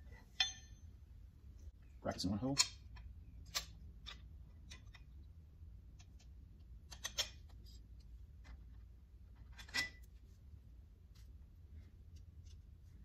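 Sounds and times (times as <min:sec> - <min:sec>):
low steady hum: 0:00.0 - 0:13.0
ringing metal clink: 0:00.3 - 0:00.9
metal brackets clicking: 0:02.4 - 0:05.2, 0:05.9 - 0:07.6.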